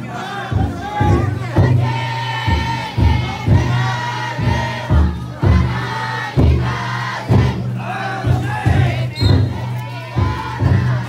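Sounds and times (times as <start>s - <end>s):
crowd chanting: 0.0s - 11.0s
deep taiko drum strokes: 0.0s - 11.0s.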